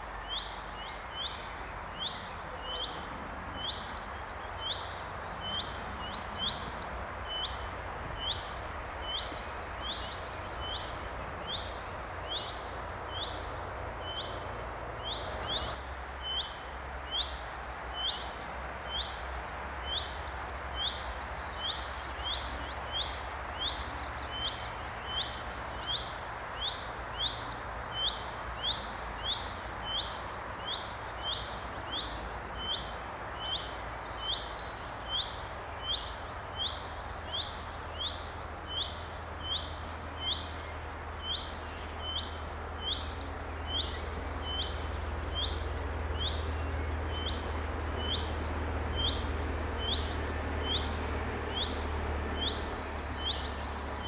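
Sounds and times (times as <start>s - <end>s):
bird chirping: 19.8s - 54.0s
rail vehicle rumble: 42.4s - 54.0s.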